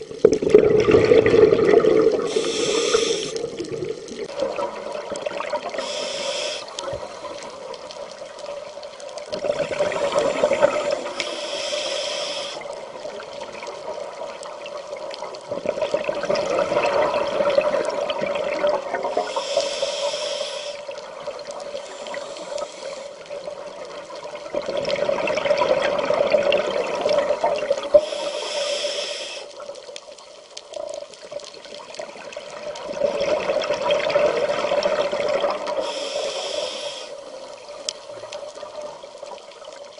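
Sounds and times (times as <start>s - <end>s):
gurgling exhaled bubbles: 0.0s - 7.5s, 9.1s - 11.4s, 15.3s - 19.6s, 21.0s - 28.2s, 31.9s - 36.5s
diver breathing through regulator: 2.2s - 3.5s, 5.7s - 7.6s, 9.8s - 12.8s, 19.1s - 20.9s, 21.7s - 23.2s, 27.9s - 29.6s, 35.7s - 37.3s
short hisses: 2.3s - 3.4s, 5.8s - 6.7s, 10.1s - 12.6s, 19.3s - 20.8s.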